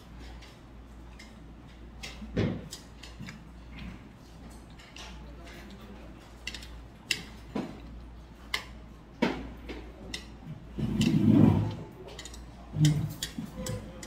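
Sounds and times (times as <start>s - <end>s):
metal chopsticks clicking on plate: 6.4s - 7.9s, 8.5s - 8.8s, 10.0s - 10.4s, 12.1s - 14.0s.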